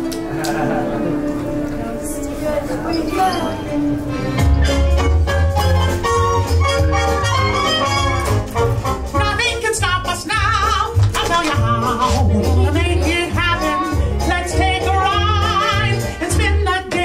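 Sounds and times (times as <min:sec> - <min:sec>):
cartoon song over speakers: 0:09.0 - 0:17.0.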